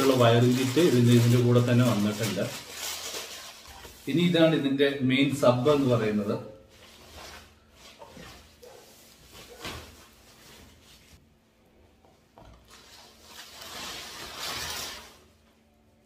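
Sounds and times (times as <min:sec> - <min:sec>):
foam packing sheet rustling: 0:00.0 - 0:04.5, 0:06.7 - 0:11.2, 0:12.6 - 0:15.4.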